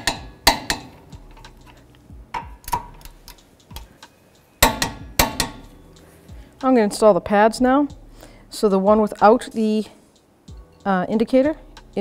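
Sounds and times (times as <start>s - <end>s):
torque wrench clicking: 0.0s - 5.7s.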